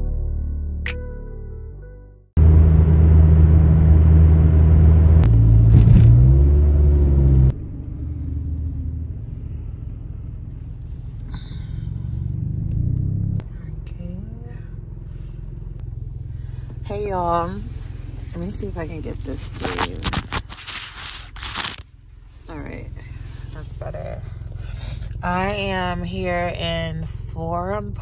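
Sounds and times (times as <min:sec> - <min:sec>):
car engine rumbling: 0:02.4 - 0:28.0.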